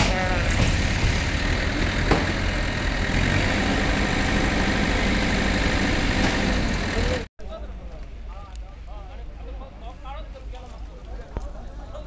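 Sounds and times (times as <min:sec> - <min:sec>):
heavy diesel engine under load: 0:00.0 - 0:07.3.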